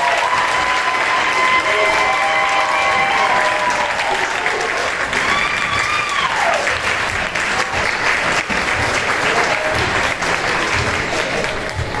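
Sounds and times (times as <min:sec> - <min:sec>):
audience applauding: 0:00.0 - 0:12.0
crowd cheering: 0:00.0 - 0:12.0.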